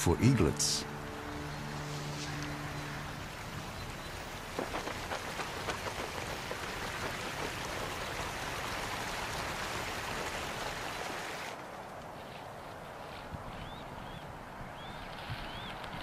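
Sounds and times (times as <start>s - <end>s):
water hissing: 1.8s - 10.3s.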